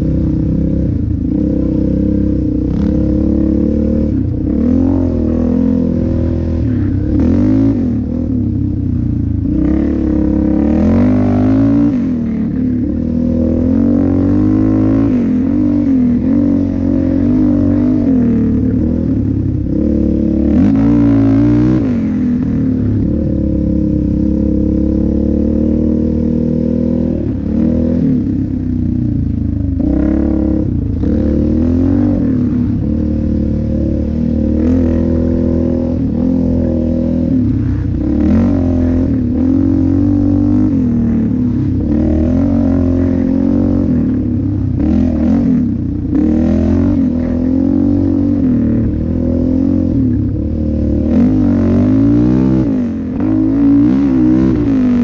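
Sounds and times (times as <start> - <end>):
atv engine revving: 0.0 - 55.0.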